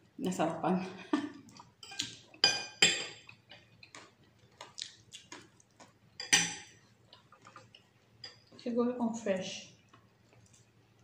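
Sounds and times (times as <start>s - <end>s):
spoon and fork clinking on plate: 1.8s - 3.3s, 6.2s - 6.8s.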